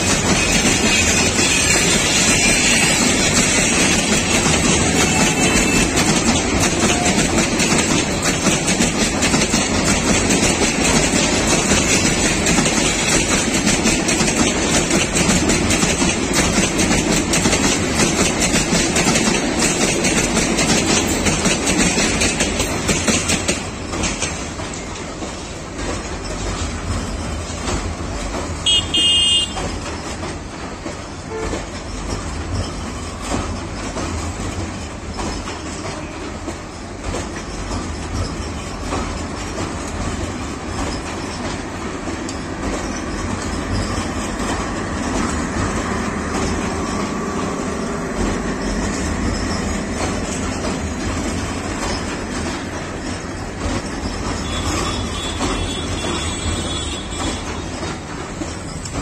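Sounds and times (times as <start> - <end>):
train rolling across steel bridge: 0.0 - 59.0
train horn toot: 5.0 - 6.0, 28.6 - 29.7, 31.3 - 31.6, 54.4 - 57.7.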